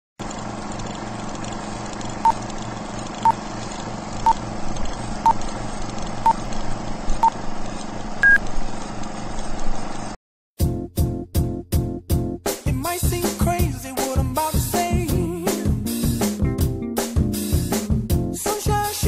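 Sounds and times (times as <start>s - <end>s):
short electronic beeps: 8.2s - 8.4s
music: 10.6s - 19.0s.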